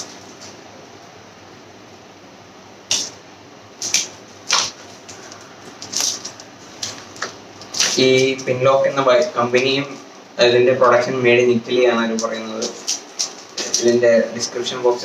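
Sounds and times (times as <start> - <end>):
plastic packaging crinkling: 3.8 - 10.1, 10.9 - 15.0.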